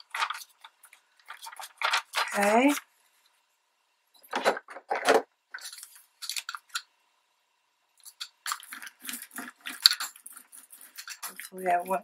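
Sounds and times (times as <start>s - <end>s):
magazine paper rustling: 0.0s - 2.8s.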